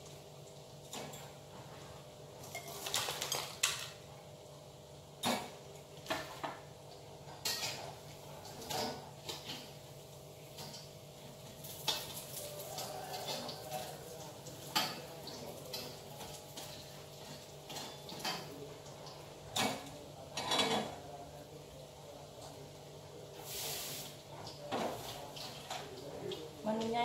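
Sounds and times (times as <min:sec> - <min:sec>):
dishes and utensils clinking: 0:00.9 - 0:01.4, 0:02.4 - 0:04.0, 0:07.4 - 0:09.8, 0:11.6 - 0:21.0.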